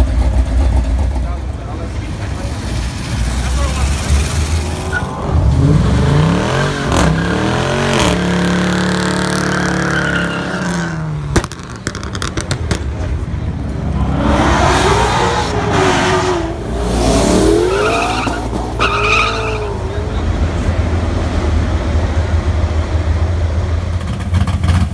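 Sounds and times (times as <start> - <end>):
car engines revving: 0.0 - 24.9
tyres squealing: 17.6 - 20.0.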